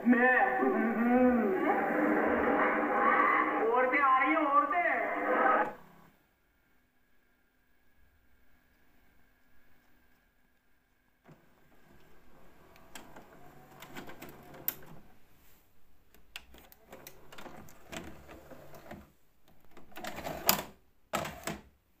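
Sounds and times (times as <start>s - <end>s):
mechanism clicks and clunks: 11.2s - 15.1s, 16.1s - 21.7s.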